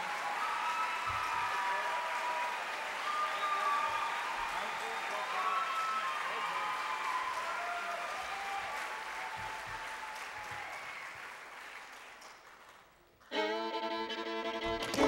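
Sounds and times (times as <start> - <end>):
audience applause: 0.0 - 13.6, 14.6 - 15.0
fiddle playing: 13.3 - 15.0.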